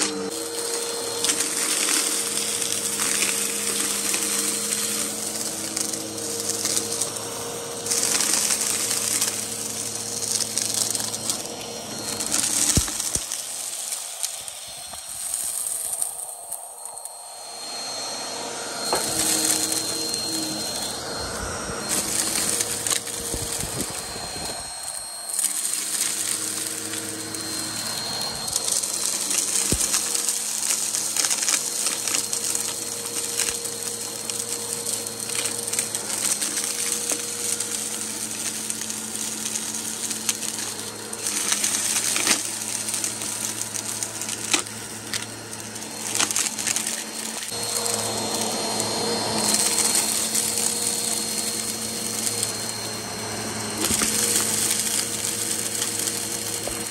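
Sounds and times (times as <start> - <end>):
vacuum cleaner running: 0.0 - 56.9
crackle of dirt being sucked up: 7.8 - 17.1, 18.8 - 53.0.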